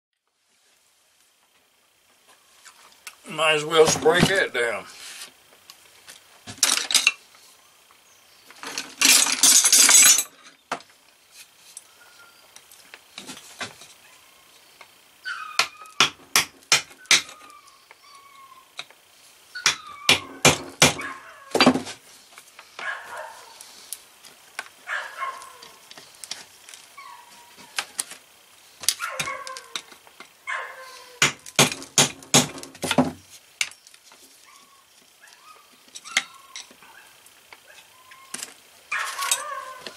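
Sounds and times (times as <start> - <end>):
hand tools clinking on metal: 8.6 - 10.6
dog barking and yelping: 21.0 - 21.5, 22.8 - 23.6, 24.8 - 25.8, 27.0 - 27.8, 29.0 - 29.8, 30.4 - 31.2, 34.4 - 38.3, 38.9 - 39.9.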